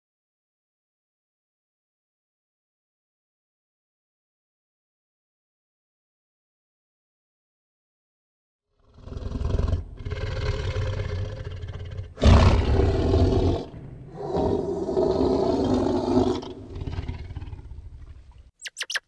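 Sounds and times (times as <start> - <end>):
large animal roaring: 8.8 - 18.5.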